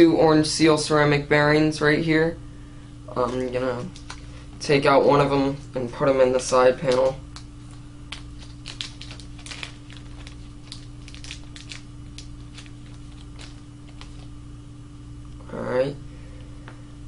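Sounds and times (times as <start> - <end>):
faint steady hum: 0.0 - 17.0
plastic bag crinkling: 3.2 - 4.5, 6.4 - 14.4.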